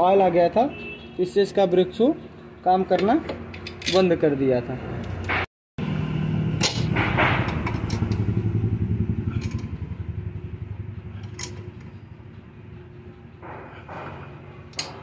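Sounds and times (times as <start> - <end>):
sharp metal knocks: 5.1 - 5.5, 6.6 - 8.6, 13.2 - 15.0
ratchet wrench clicking: 9.3 - 9.8, 11.2 - 12.0.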